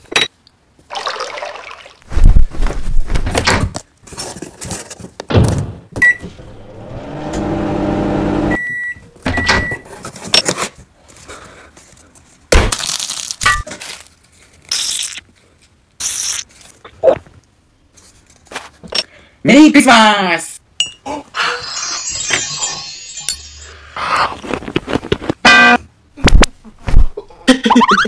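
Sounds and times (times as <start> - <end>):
microwave beeps: 6.0 - 6.4, 8.3 - 9.8
microwave oven humming: 6.1 - 8.7
piping bag hissing squirts: 16.0 - 16.6.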